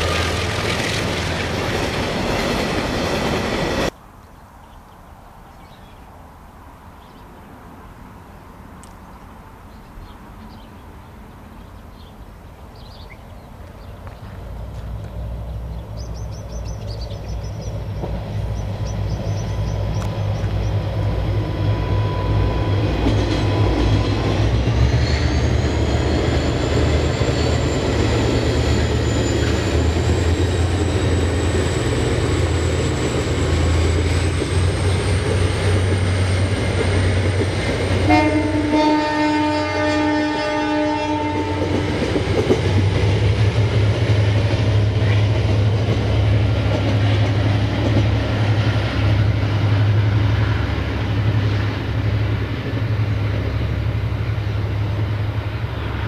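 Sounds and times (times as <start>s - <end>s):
diesel locomotive engines rumbling: 0.0s - 4.0s, 7.5s - 56.0s
wheels clattering on rails: 13.7s - 38.6s, 41.2s - 55.3s
locomotive horn: 38.0s - 42.0s.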